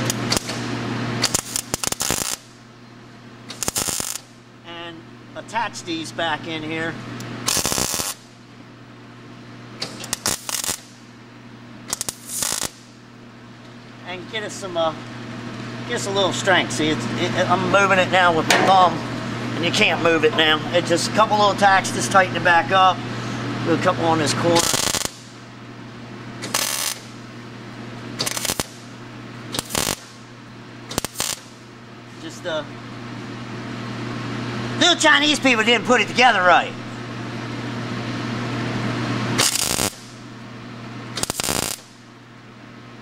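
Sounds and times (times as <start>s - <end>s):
welding arc crackle: 0.0s - 2.6s, 3.4s - 4.4s, 7.4s - 8.3s, 9.8s - 11.1s, 11.8s - 13.0s, 24.4s - 25.4s, 26.4s - 27.4s, 28.1s - 30.3s, 30.9s - 31.7s, 39.3s - 40.2s, 41.1s - 42.1s
steady low hum: 0.0s - 43.0s.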